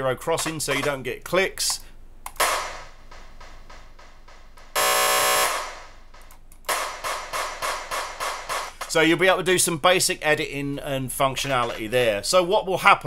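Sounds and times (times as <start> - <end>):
looped drum sample stutter: 2.4 - 9.0
loud steady buzz: 4.8 - 6.1.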